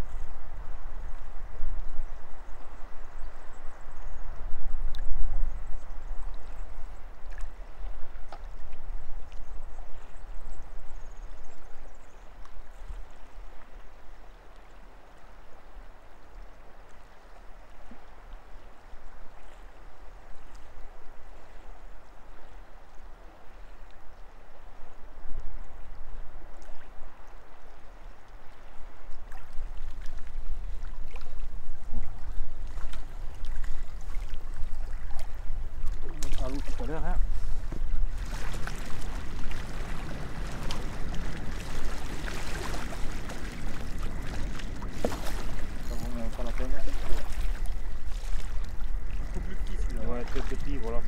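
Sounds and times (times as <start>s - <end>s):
water lapping at shore: 5.8s - 51.0s
wind buffeting microphone: 29.6s - 51.0s.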